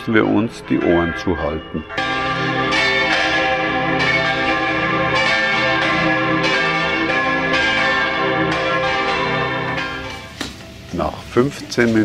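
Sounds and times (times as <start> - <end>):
church bells pealing: 0.0 - 12.0.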